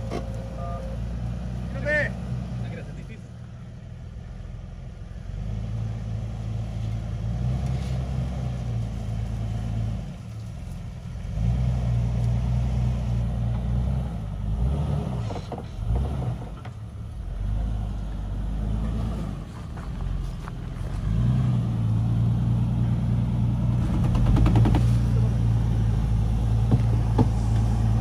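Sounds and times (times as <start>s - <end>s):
off-road vehicle engine under load: 0.0s - 28.0s.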